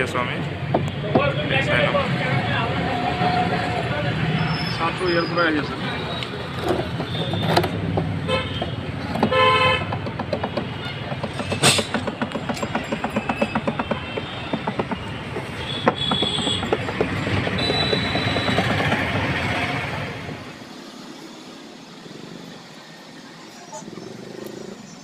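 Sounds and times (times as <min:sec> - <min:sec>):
road traffic engine rumble: 0:00.0 - 0:25.0
vehicle horn toot: 0:08.3 - 0:09.9, 0:15.6 - 0:16.8, 0:17.5 - 0:18.7.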